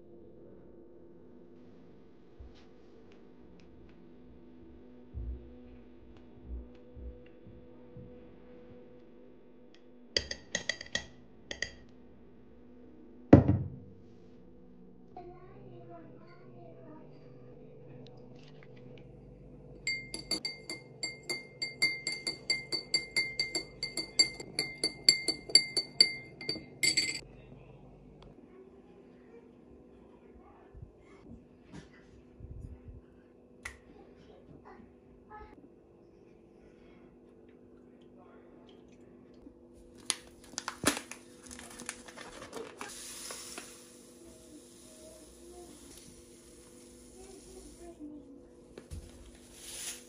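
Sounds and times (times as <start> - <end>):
faint steady hum: 0.0 - 49.8
utensil clinking against glass: 19.9 - 27.2
rustling crinkling: 39.9 - 43.7.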